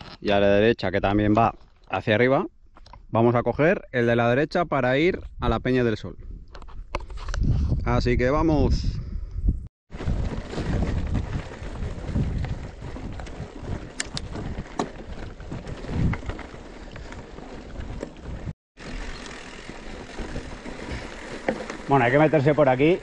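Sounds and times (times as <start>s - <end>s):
wind rumbling on microphone: 5.1s - 21.8s
tyres on gravel: 9.9s - 23.0s
bike clicks and rattles: 10.0s - 23.0s.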